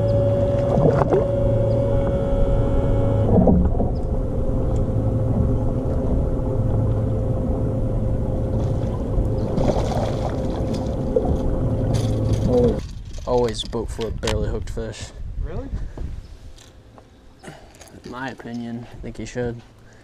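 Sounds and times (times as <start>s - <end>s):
boat motor humming: 0.0s - 13.4s, 15.9s - 20.0s.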